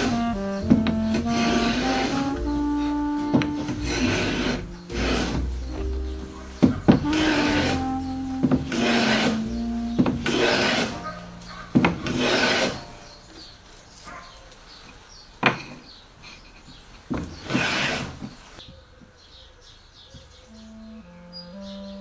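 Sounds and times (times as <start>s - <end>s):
hand plane shaving wood: 0.0s - 5.7s, 6.6s - 11.2s, 11.8s - 12.9s, 17.4s - 18.3s
wooden knock: 0.6s - 1.2s, 3.3s - 4.3s, 5.1s - 7.3s, 8.4s - 9.0s, 10.0s - 10.4s, 11.7s - 12.4s.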